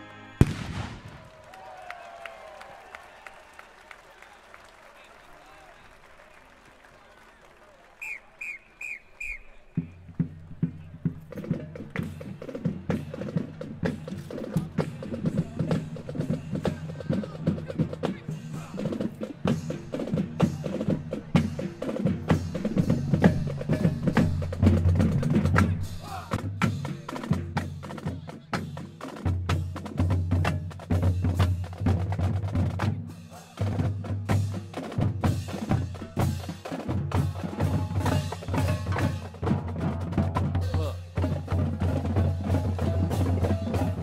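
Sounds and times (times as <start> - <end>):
snare drum strokes and rolls: 8.0 - 44.0.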